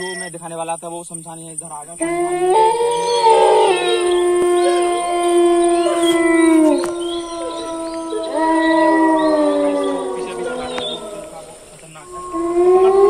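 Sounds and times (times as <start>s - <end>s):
overlapping long howls: 2.0s - 13.0s.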